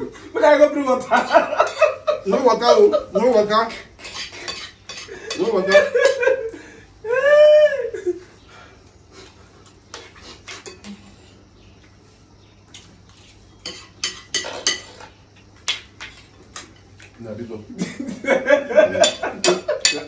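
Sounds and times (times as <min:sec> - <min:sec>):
spoon clinking on plates: 0:01.0 - 0:02.0, 0:04.0 - 0:06.3, 0:09.9 - 0:11.3, 0:12.7 - 0:17.1, 0:18.9 - 0:20.0
man crying out: 0:07.0 - 0:08.0.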